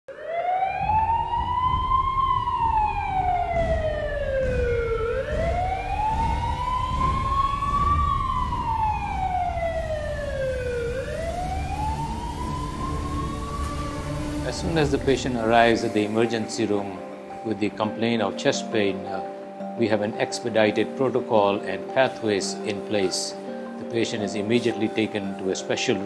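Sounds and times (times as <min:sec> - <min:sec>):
ambulance siren wailing: 0:00.1 - 0:26.0
low rumble: 0:00.8 - 0:15.7.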